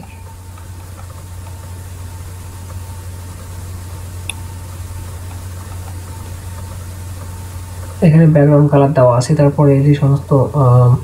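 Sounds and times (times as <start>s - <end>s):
even hiss: 0.0s - 11.0s
low hum: 0.0s - 11.0s.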